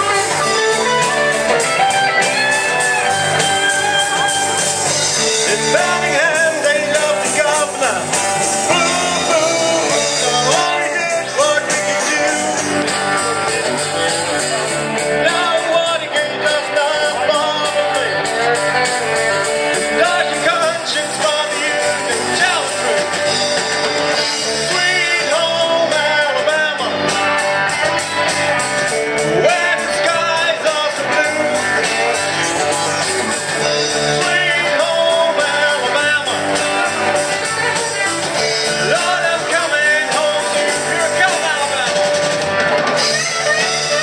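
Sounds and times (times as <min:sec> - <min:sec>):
bass guitar: 0:00.0 - 0:44.0
drum kit beat: 0:00.0 - 0:44.0
electric guitars: 0:00.0 - 0:44.0
man singing into microphone: 0:05.2 - 0:12.8, 0:15.0 - 0:18.4, 0:19.7 - 0:23.2, 0:24.4 - 0:27.1, 0:29.3 - 0:32.4, 0:33.9 - 0:37.2, 0:38.6 - 0:42.1.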